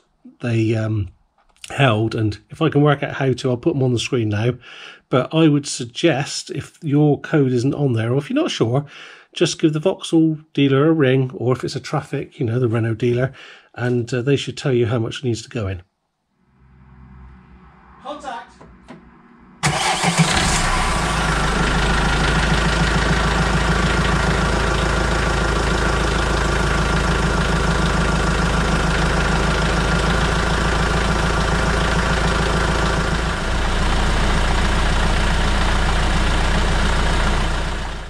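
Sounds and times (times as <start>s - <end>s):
diesel engine idling: 19.6s - 38.0s.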